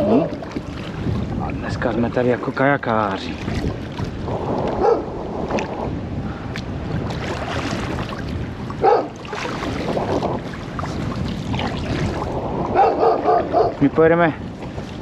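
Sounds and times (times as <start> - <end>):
kayak paddling water: 0.0 - 15.0
wind on microphone: 0.0 - 15.0.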